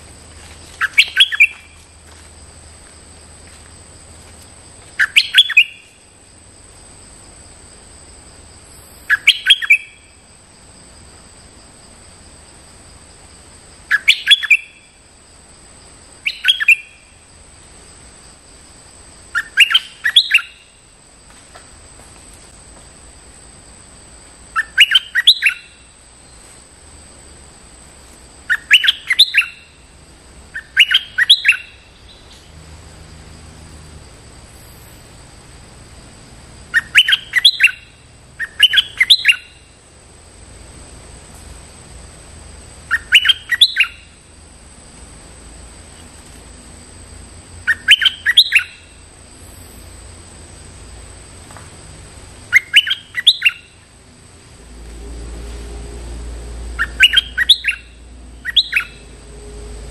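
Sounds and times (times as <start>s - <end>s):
bird singing bubbly phrases: 56.8s - 59.0s.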